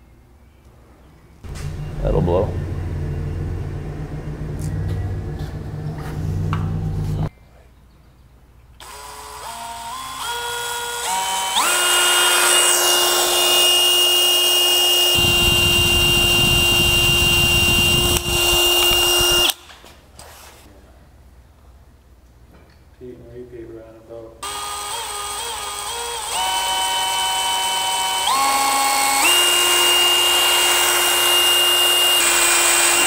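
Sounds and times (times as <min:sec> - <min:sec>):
low hum: 0:01.4 - 0:07.3, 0:14.6 - 0:19.6
cordless drill motor whining: 0:08.8 - 0:19.6, 0:24.4 - 0:33.0
drill bit grinding through steel: 0:08.8 - 0:19.6, 0:24.4 - 0:33.0.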